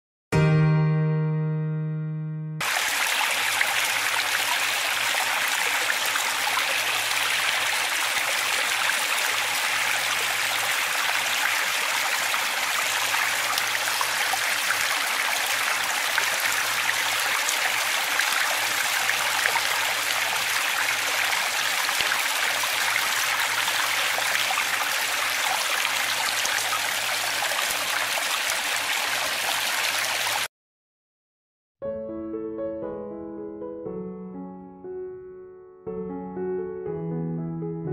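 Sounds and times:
small waterfall rushing: 0:02.6 - 0:30.5.

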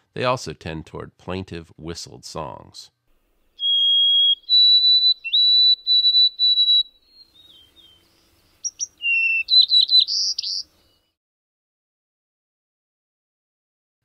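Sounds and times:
sparrows singing whistled songs: 0:03.4 - 0:11.2.

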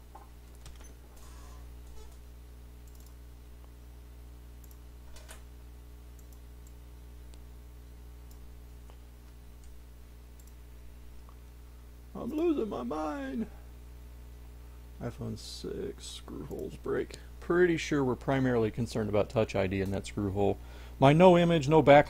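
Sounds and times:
low electrical hum: 0:00.0 - 0:22.0
computer mouse clicking: 0:02.8 - 0:03.2, 0:04.6 - 0:05.4, 0:06.2 - 0:07.4, 0:10.4 - 0:10.6.

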